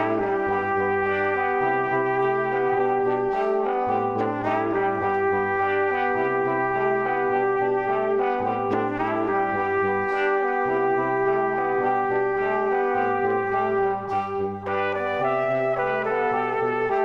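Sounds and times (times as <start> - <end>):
background music with bass line: 0.0 - 17.0.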